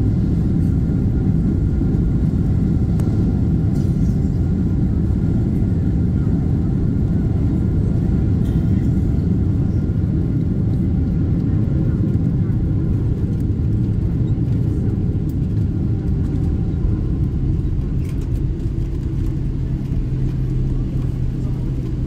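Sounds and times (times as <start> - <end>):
low rumble of wheels: 0.0 - 22.0.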